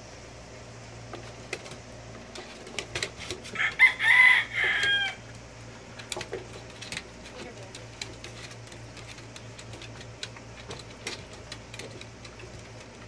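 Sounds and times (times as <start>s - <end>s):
rooster crowing: 3.5s - 5.3s.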